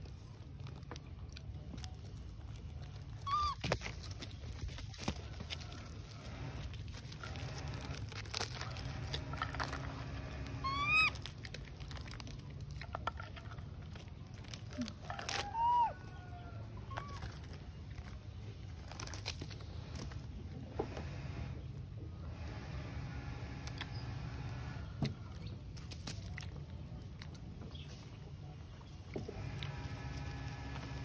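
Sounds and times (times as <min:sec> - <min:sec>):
baby monkeys calling: 0:03.1 - 0:03.9, 0:10.5 - 0:11.4, 0:15.3 - 0:16.2.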